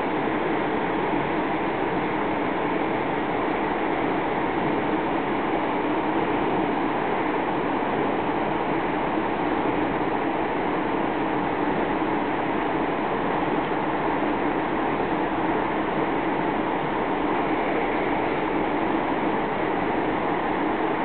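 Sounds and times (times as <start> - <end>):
river rushing: 8.7 - 21.0.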